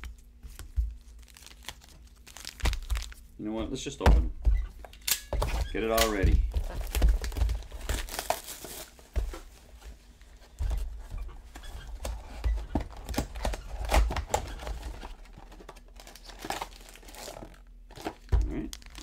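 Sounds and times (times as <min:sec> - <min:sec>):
packaging crinkling and tearing: 0:00.0 - 0:03.4, 0:06.0 - 0:09.0, 0:12.0 - 0:19.0.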